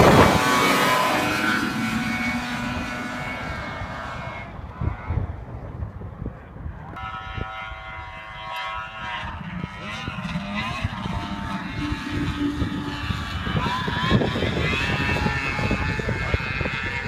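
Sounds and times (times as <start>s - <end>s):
snowmobile engine whine: 0.0s - 17.0s.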